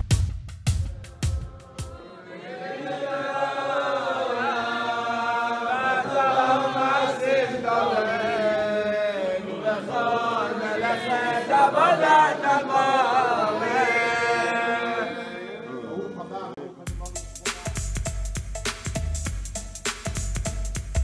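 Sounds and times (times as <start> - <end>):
men chanting in unison: 1.0 - 15.8.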